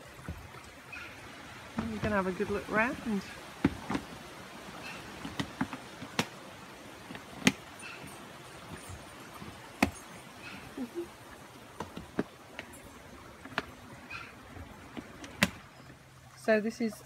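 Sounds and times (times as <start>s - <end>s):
sharp clicks and knocks: 7.0s - 10.1s.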